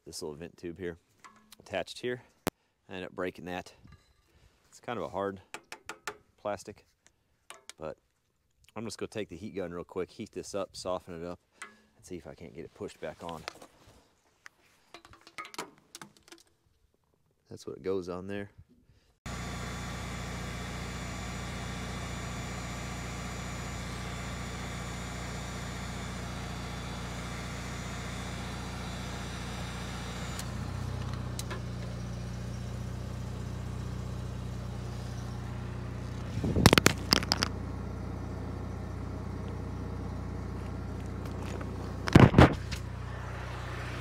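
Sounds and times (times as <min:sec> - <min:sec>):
heat gun fan whir: 0:19.3 - 0:32.8, 0:34.2 - 0:44.0.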